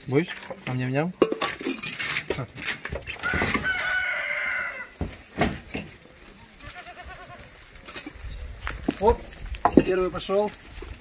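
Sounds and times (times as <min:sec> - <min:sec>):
rooster crowing: 0:03.2 - 0:05.0.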